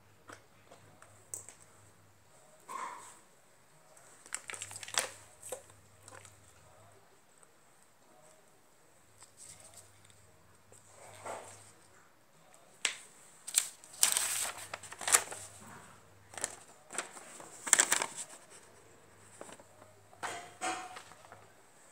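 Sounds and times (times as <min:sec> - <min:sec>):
paper rustling: 0:12.8 - 0:19.9.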